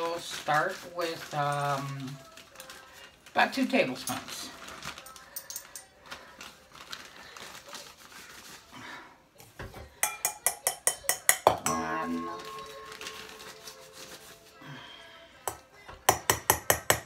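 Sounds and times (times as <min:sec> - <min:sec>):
measuring spoon clinking against bowl: 0:10.0 - 0:12.8.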